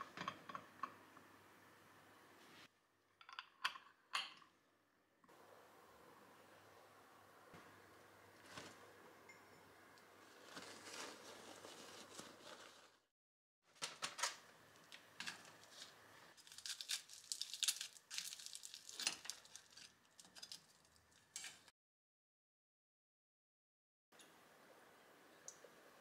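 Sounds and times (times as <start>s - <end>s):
paper filter bag rustling: 10.2s - 13.1s, 15.3s - 21.0s
dried kelp cracking and snapping: 16.4s - 19.8s.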